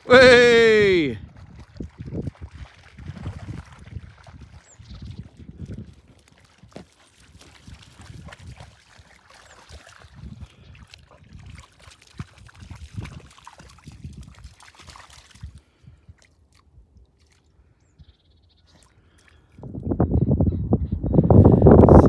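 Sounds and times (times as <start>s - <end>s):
dog splashing in water: 1.2s - 15.6s.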